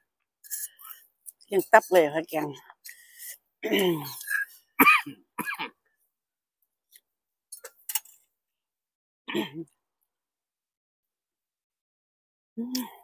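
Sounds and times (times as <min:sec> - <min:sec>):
person clearing throat: 0:03.6 - 0:05.8, 0:09.3 - 0:09.7.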